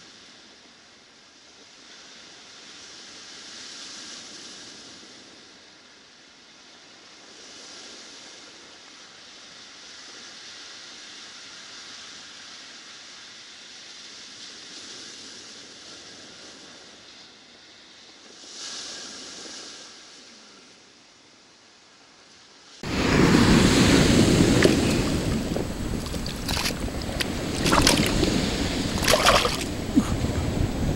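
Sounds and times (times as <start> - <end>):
ocean surf breaking on pebbles: 22.8 - 30.9.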